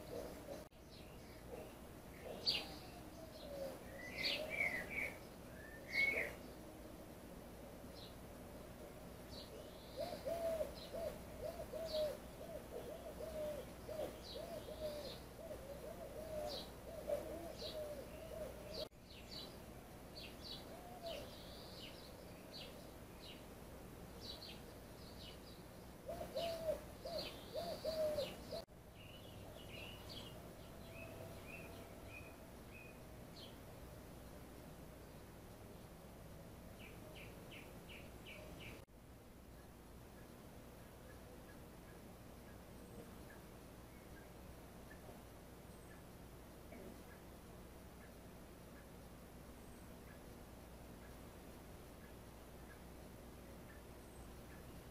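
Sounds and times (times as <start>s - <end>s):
birds calling and chirping: 0.0s - 6.8s, 8.8s - 33.6s, 36.8s - 38.9s, 39.5s - 54.9s.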